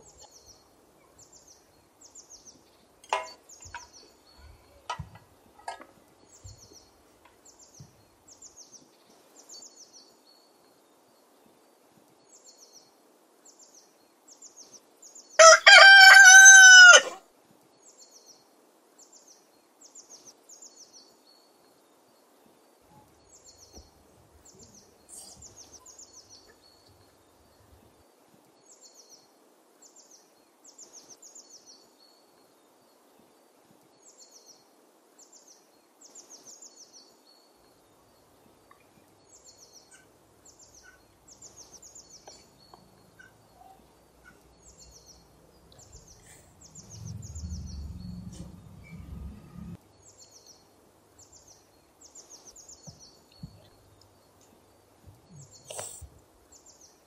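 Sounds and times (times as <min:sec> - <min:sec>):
rooster crowing: 0:15.4 - 0:17.2
small bird chirping: 0:38.2 - 0:54.6, 0:55.2 - 0:57.0.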